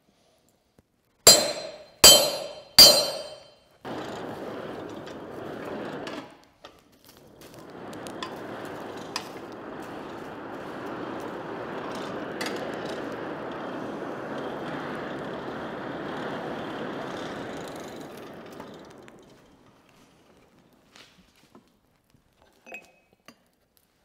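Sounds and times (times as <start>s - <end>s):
forge blower rushing air: 1.3s - 6.3s, 7.1s - 21.0s.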